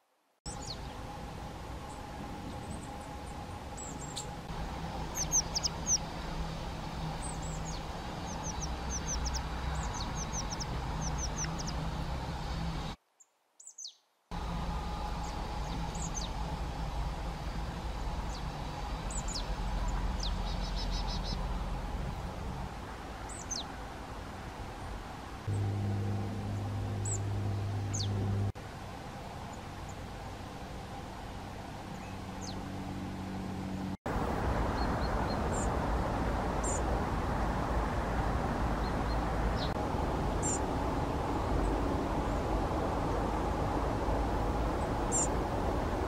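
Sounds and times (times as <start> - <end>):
steady low hum: 0.5 - 13.0, 14.3 - 46.0
songbirds chirping: 0.5 - 45.6.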